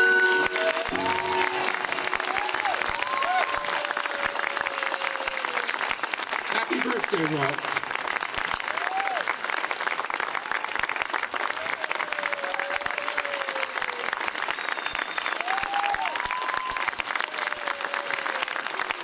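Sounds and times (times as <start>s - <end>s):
crowd applauding: 0.0s - 19.0s
drawn-out cheers: 0.3s - 6.0s, 8.6s - 9.4s, 11.4s - 19.0s.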